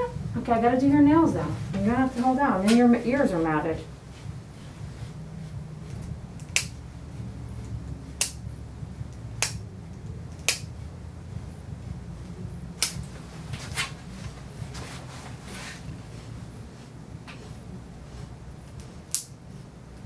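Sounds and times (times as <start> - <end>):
nail clippers snapping: 6.4 - 6.8, 8.2 - 8.4, 9.4 - 9.6, 10.3 - 10.7, 12.8 - 13.1, 18.8 - 19.4.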